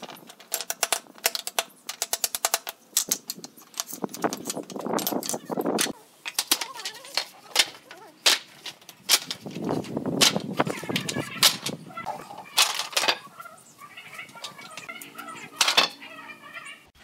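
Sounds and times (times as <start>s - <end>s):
wooden boards dropped on concrete: 6.3s - 11.8s.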